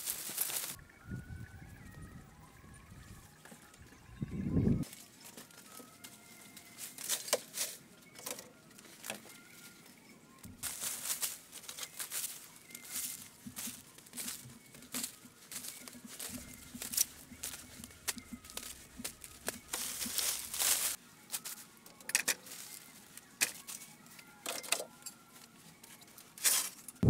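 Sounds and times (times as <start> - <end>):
rustling of leaves: 0.0 - 0.8, 4.8 - 10.0, 10.6 - 21.8, 22.4 - 24.2.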